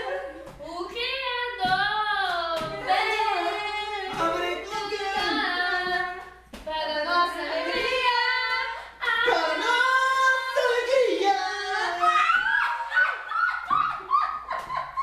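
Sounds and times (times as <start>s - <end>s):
group singing long held notes: 2.7s - 12.5s.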